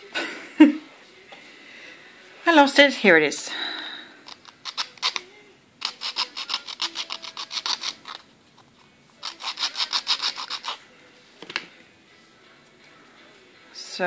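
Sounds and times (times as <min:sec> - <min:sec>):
ring rasping on nail file: 0:04.2 - 0:10.8.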